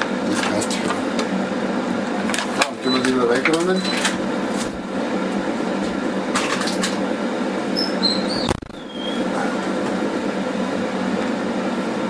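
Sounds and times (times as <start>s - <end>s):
air fryer fan humming: 0.0s - 12.0s
brief high squeaks: 7.7s - 9.3s.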